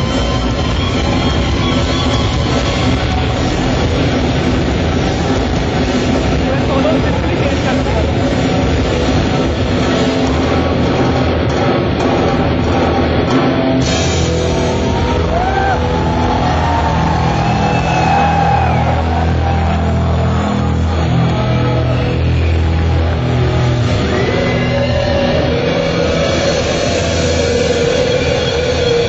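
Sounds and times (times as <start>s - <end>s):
bass guitar: 0.0s - 29.0s
drum kit: 0.0s - 29.0s
electric guitar lead with pitch bends: 0.0s - 29.0s.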